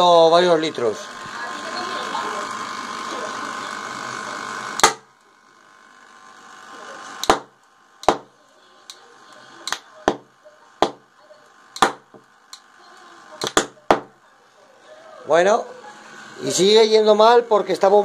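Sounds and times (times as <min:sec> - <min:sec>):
sharp gas ignition pops: 0:04.8 - 0:05.1, 0:07.2 - 0:09.0, 0:11.7 - 0:12.7, 0:13.4 - 0:14.2.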